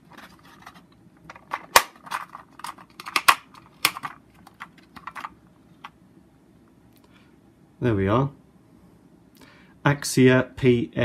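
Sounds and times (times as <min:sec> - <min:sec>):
plastic cassette case clicking: 0:00.2 - 0:05.3.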